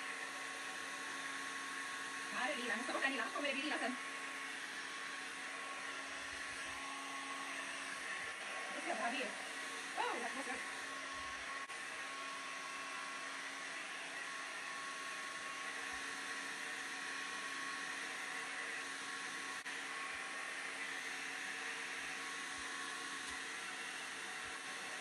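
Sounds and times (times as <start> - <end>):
hair dryer running: 0.0 - 25.0.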